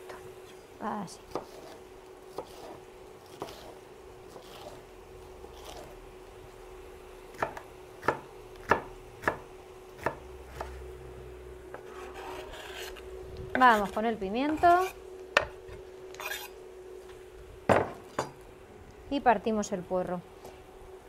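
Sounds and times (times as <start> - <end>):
knife chopping on wooden board: 1.3 - 3.7, 7.3 - 10.8.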